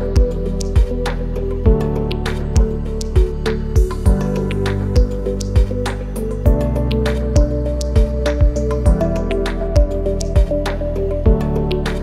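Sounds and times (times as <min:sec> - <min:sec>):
kick drum thumps: 0:07.4 - 0:09.0.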